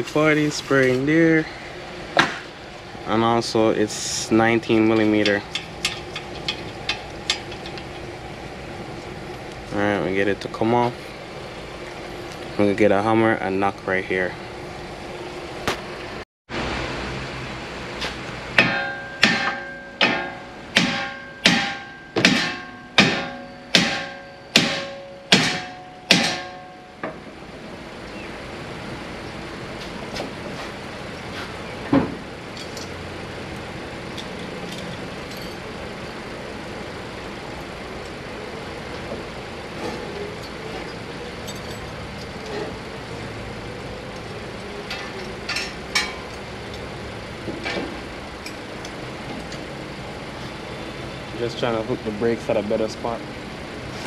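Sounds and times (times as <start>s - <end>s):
hammer striking metal: 18.6s - 27.2s.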